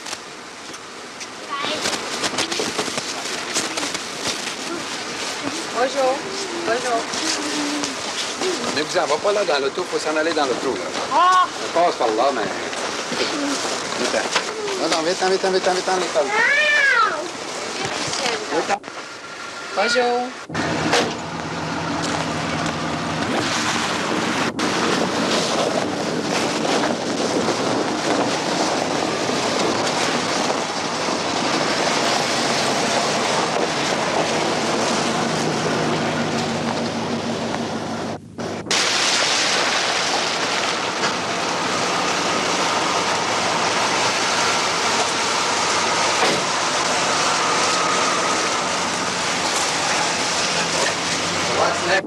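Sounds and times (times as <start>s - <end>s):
engine drone: 17.3s - 52.0s
loud rushing noise: 20.4s - 52.0s.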